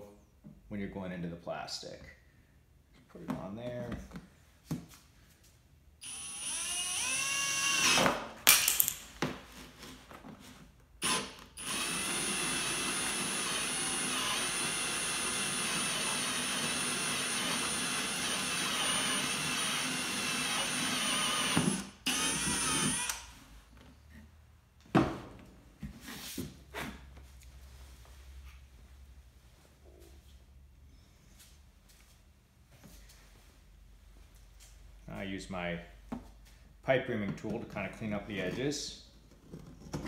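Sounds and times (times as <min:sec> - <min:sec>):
drill press cutting plastic: 0:11.0 - 0:23.2.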